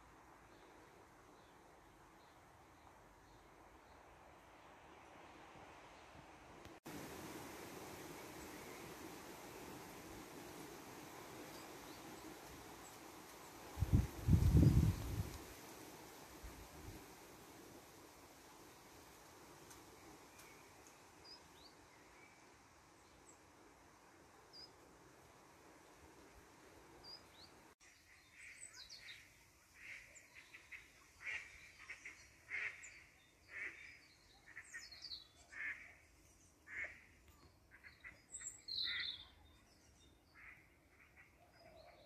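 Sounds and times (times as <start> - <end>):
faint high bird chirps: 36.7 - 40.6.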